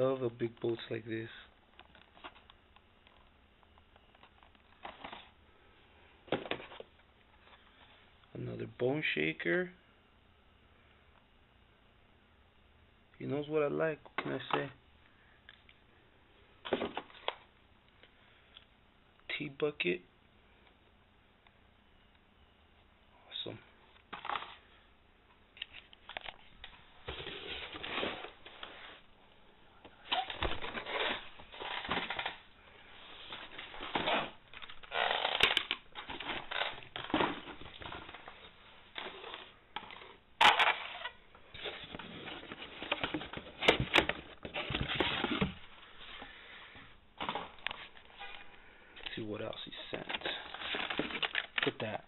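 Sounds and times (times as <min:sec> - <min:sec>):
rummaging through toy packaging: 0:30.1 - 0:32.4, 0:33.2 - 0:41.0, 0:41.6 - 0:45.6, 0:49.8 - 0:51.9.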